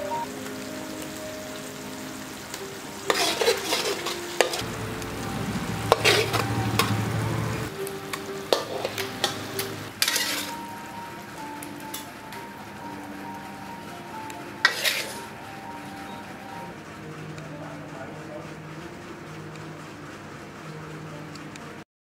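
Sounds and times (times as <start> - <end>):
fish sizzling: 0.0 - 17.8
metal spatula scraping a wok: 3.0 - 4.6, 5.9 - 7.0, 8.5 - 10.7, 14.6 - 15.4.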